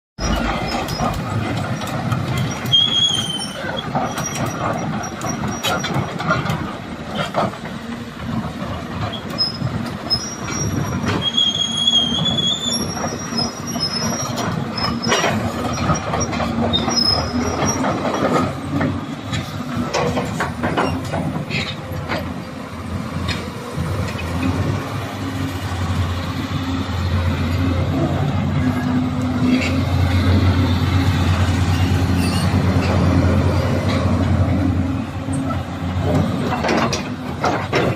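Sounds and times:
high metallic squeals: 0:01.8 - 0:05.7, 0:09.1 - 0:18.0, 0:31.4 - 0:32.9
metallic knocks and clanks: 0:35.3 - 0:37.9.

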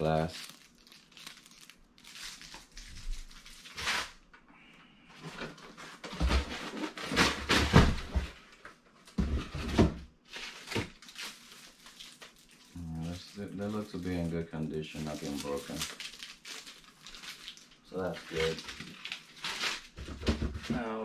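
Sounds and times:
packaging rustling: 0:00.0 - 0:04.2, 0:10.2 - 0:20.3.

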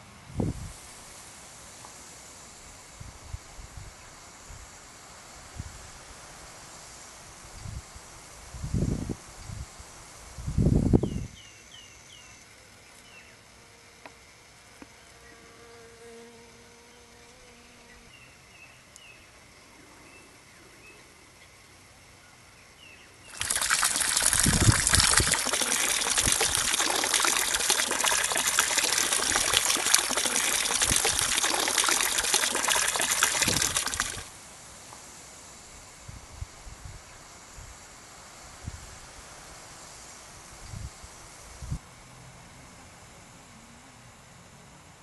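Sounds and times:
rush of running water: 0:23.3 - 0:34.4.

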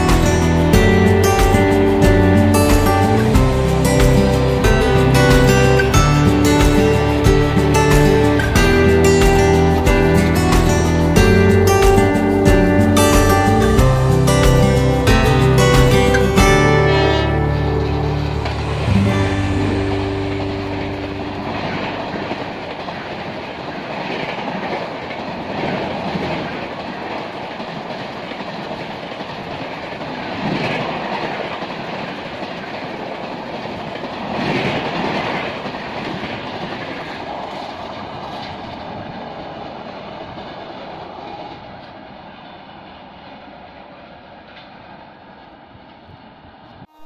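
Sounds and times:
train wheels clattering on rail: 0:00.0 - 0:45.0.

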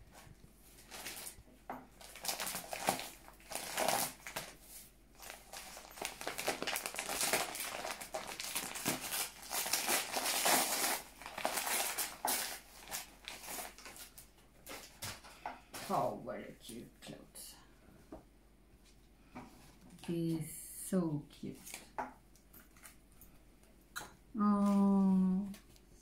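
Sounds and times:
wrapping paper crinkling: 0:00.6 - 0:01.4, 0:02.0 - 0:15.3.

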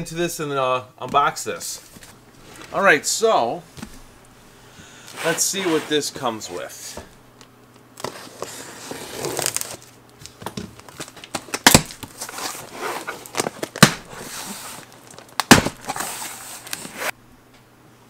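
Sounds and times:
cardboard scraping and tearing: 0:05.0 - 0:06.7, 0:08.0 - 0:09.9, 0:10.9 - 0:17.2
loud sharp cardboard cracks: 0:09.1 - 0:17.1.

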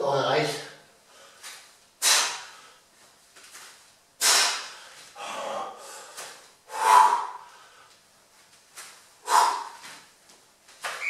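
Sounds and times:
man breathing heavily: 0:01.0 - 0:02.9, 0:04.2 - 0:08.1, 0:09.1 - 0:10.1.

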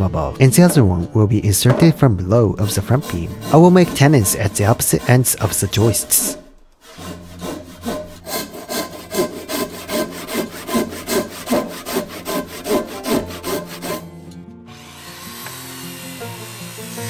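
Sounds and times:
handsaw rasping through wood: 0:02.5 - 0:14.1.

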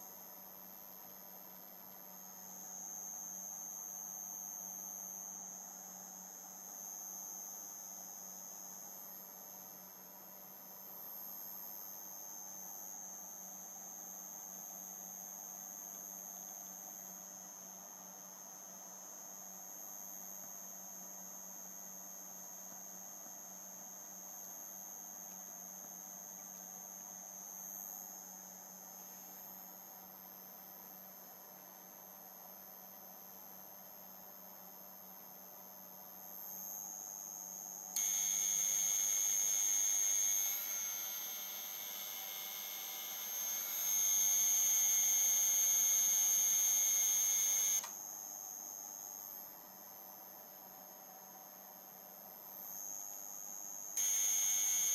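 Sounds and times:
high-pitched electronic whine: 0:38.0 - 0:47.9, 0:54.0 - 0:54.9.

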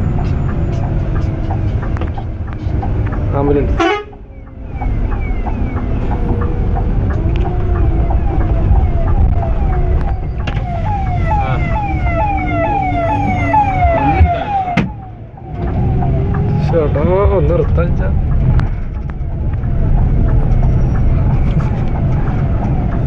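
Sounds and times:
coach rumbling: 0:00.0 - 0:22.6
electronic siren falling sweeps: 0:04.3 - 0:17.4.

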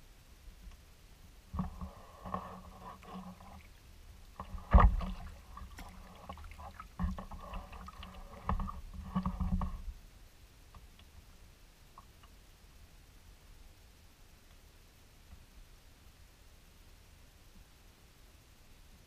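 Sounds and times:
kayak paddle strokes in water: 0:01.5 - 0:10.0.

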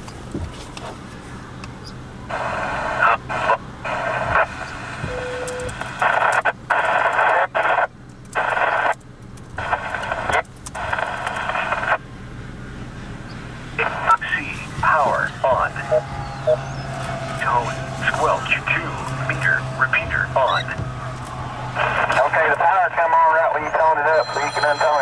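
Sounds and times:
steady low hum: 0:00.0 - 0:24.2
radio transmissions: 0:02.3 - 0:09.0, 0:09.6 - 0:12.0, 0:13.8 - 0:25.0
brief beep: 0:23.7 - 0:25.0.

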